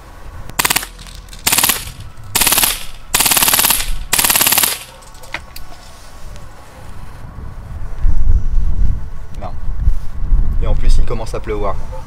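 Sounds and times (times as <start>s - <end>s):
airsoft gun full-auto clicks: 0.5s - 5.0s.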